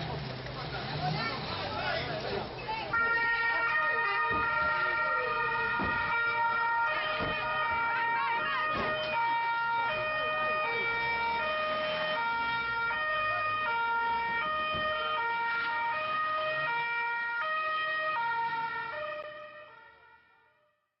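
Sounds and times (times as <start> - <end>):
police siren two-tone: 3.0 - 19.7.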